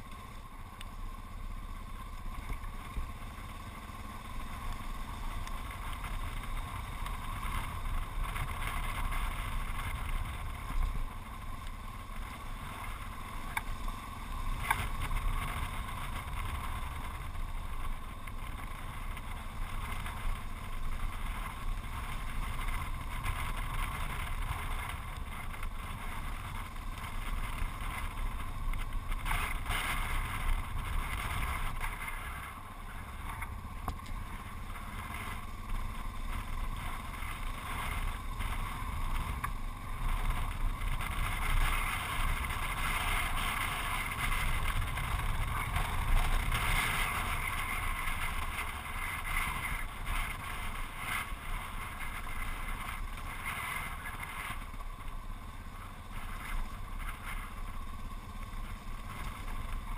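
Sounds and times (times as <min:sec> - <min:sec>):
motorcycle engine running: 0:00.0 - 0:59.9
wind buffeting microphone: 0:05.4 - 0:59.9.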